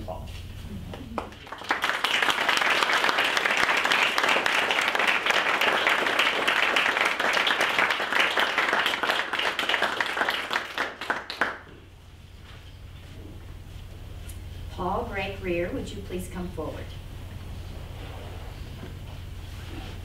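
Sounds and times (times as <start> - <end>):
audience applauding: 0.9 - 11.8.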